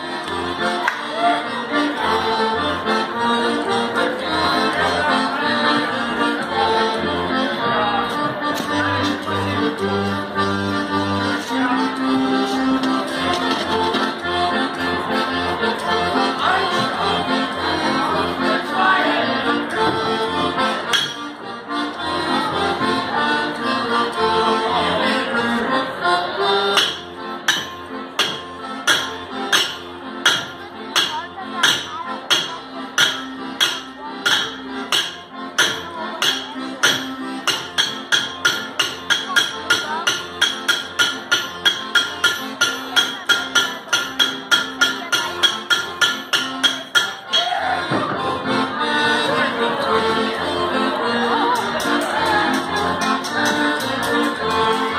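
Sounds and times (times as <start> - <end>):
accordion dance music: 0.0 - 54.9
hammers striking an anvil: 20.9 - 21.2, 26.8 - 47.7.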